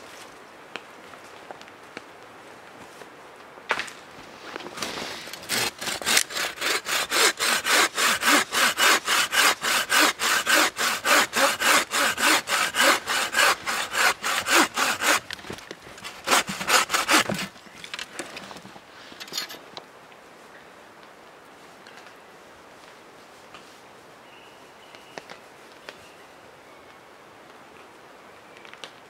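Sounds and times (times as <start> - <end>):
hand saw cutting wood: 5.3 - 15.3, 16.0 - 17.5.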